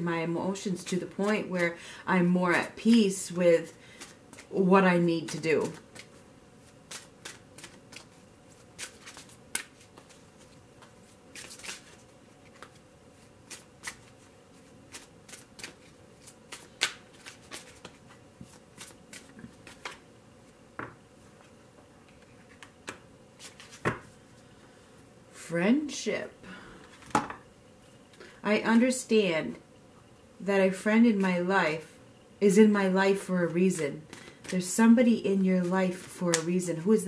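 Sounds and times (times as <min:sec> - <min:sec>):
cards being shuffled: 0:02.6 - 0:20.0, 0:21.4 - 0:24.1, 0:35.4 - 0:36.7.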